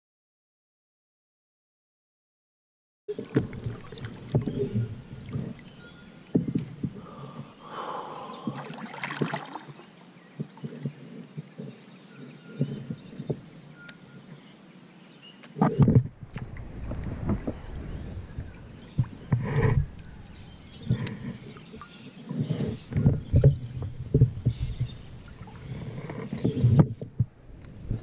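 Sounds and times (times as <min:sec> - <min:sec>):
paddle splashing in water: 0:03.1 - 0:11.8, 0:15.6 - 0:28.0
paddle knocking on kayak hull: 0:03.2 - 0:07.1.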